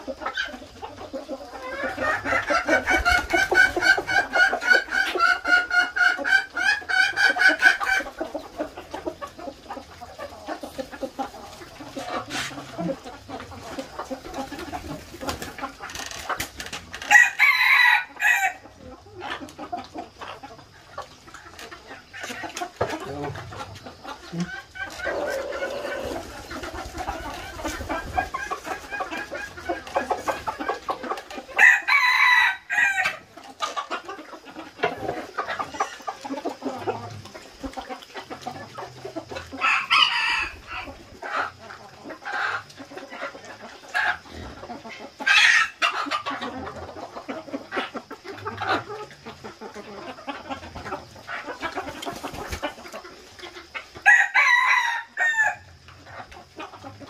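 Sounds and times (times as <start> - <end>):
chickens clucking: 0.0 - 57.0
roosters crowing: 1.4 - 8.8, 16.9 - 18.7, 22.8 - 33.8, 38.6 - 41.6, 53.9 - 55.8.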